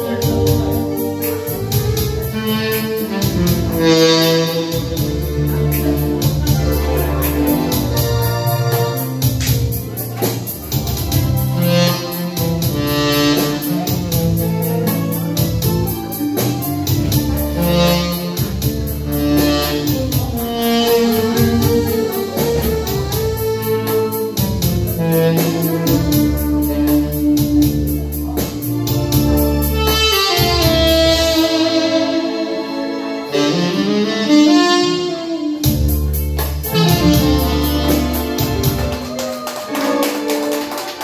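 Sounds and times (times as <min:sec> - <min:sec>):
bass: 0:00.0 - 0:41.0
electronic keyboard: 0:00.0 - 0:41.0
tenor saxophone melody: 0:00.0 - 0:41.0
electric guitar: 0:35.7 - 0:41.0.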